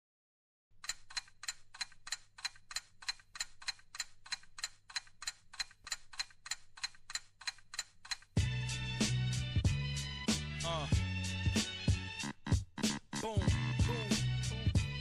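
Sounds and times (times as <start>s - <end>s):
rapid even ticking: 0.8s - 8.4s.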